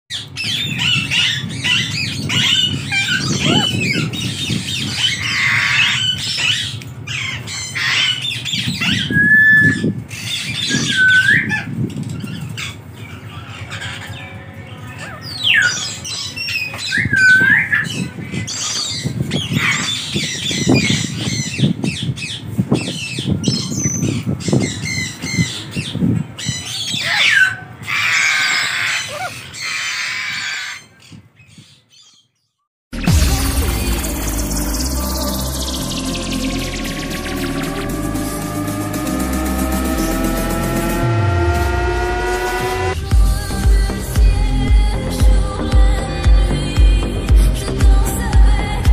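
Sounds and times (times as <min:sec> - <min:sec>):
parrot squawking: 0:00.1 - 0:22.4, 0:23.6 - 0:31.0
parrot whistling: 0:00.5 - 0:06.7, 0:10.6 - 0:11.6.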